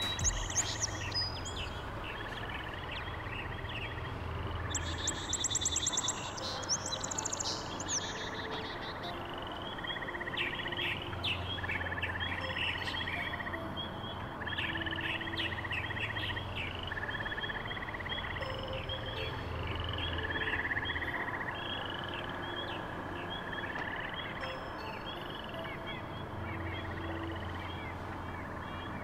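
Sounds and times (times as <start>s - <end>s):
high bird twittering: 0.0s - 13.5s
dry bird trill: 0.0s - 29.0s
songbirds singing and chirping: 0.0s - 29.0s
steady low hum: 0.0s - 29.0s.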